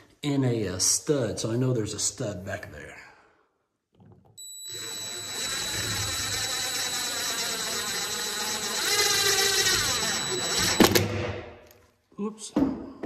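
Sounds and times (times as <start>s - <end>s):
power drill whining: 4.4s - 11.2s.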